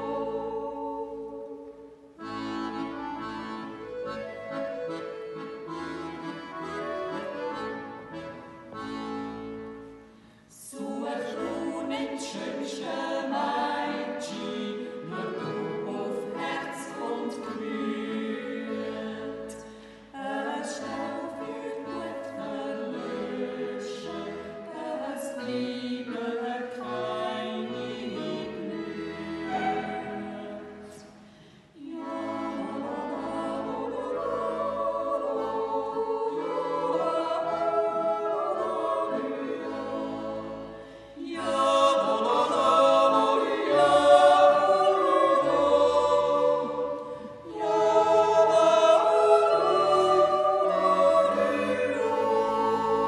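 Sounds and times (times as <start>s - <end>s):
vocal quartet yodeling in harmony: 0.0s - 8.2s, 8.8s - 9.8s, 10.5s - 53.0s
accordion: 0.0s - 53.0s.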